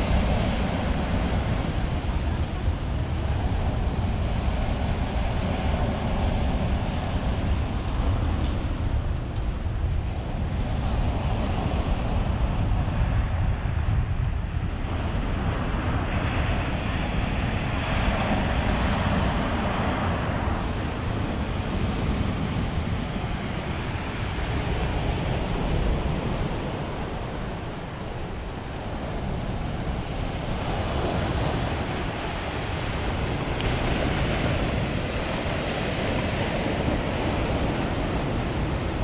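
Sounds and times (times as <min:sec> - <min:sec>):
wind buffeting microphone: 0:00.0 - 0:39.0
waves breaking on pebble beach: 0:28.9 - 0:39.0.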